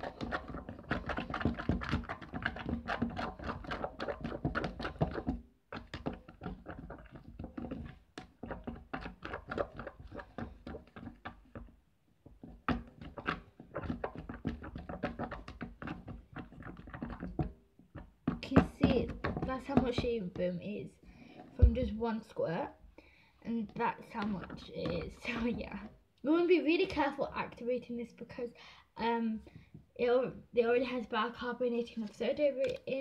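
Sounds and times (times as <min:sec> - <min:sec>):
pencil tapping plastic tub: 0:00.0 - 0:22.3, 0:23.5 - 0:26.0, 0:32.0 - 0:33.0.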